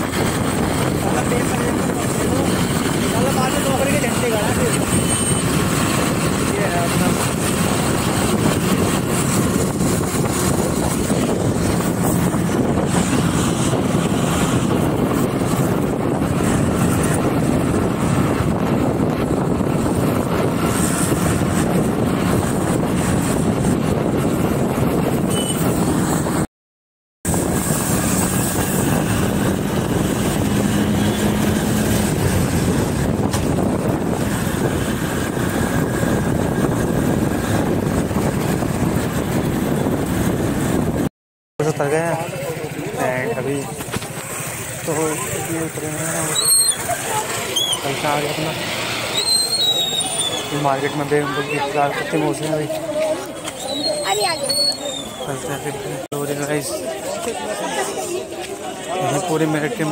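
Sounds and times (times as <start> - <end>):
road rumble: 0.0 - 26.5, 27.2 - 59.9
vehicle running: 0.0 - 26.5, 27.3 - 59.9
wind on microphone: 0.0 - 26.5, 27.3 - 41.1.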